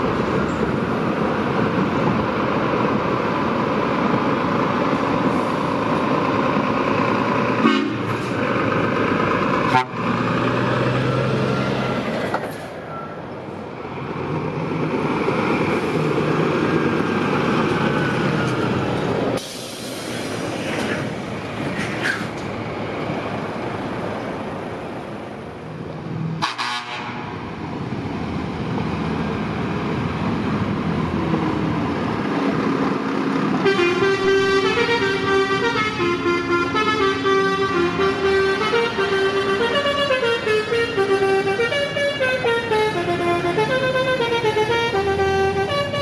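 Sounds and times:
trucks driving past: 0:00.0 - 0:46.0
tyres hissing on road: 0:03.4 - 0:12.9, 0:14.9 - 0:25.1.

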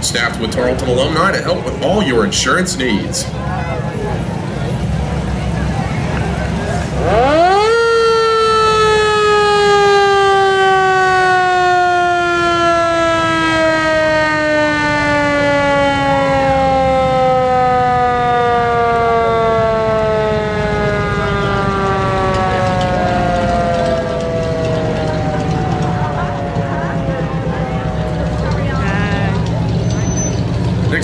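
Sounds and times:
siren winding down: 0:06.8 - 0:30.3.

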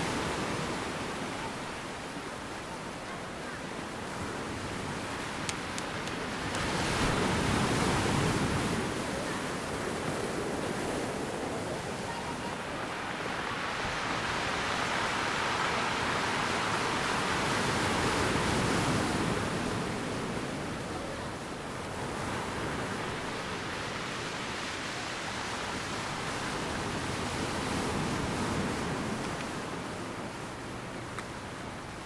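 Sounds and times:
faint clicks: 0:05.4 - 0:06.7.

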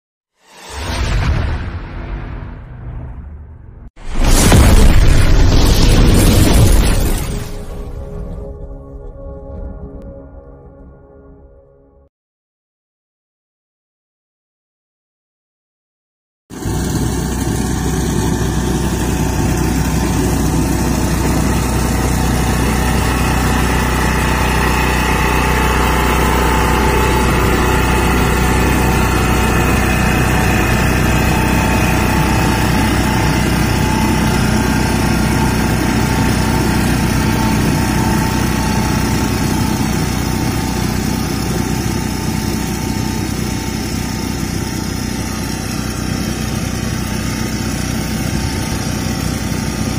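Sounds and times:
small diesel engine running: 0:16.5 - 0:49.9.

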